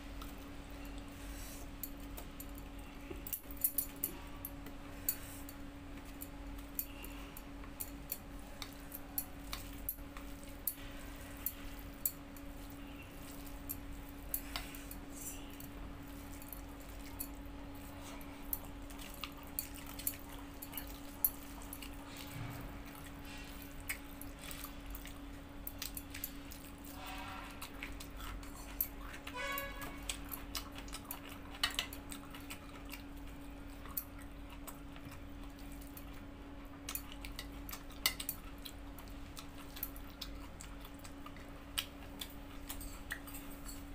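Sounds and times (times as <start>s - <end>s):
steady low hum: 0.0s - 43.9s
chewing: 0.1s - 43.9s
fingers and bangles clinking on plate: 23.1s - 33.0s.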